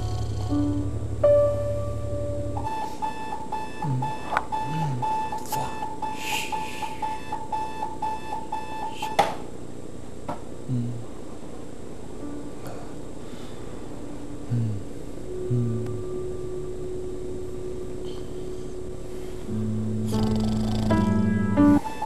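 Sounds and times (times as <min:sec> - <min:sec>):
low pulsing buzz: 0:00.0 - 0:07.0, 0:10.6 - 0:21.9
alarm clock beeping: 0:00.0 - 0:09.2, 0:15.9 - 0:22.0.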